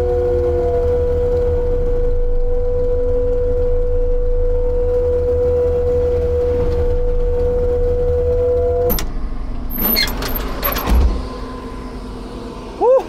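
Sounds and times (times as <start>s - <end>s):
deep diesel engine rumble: 0.0s - 13.0s.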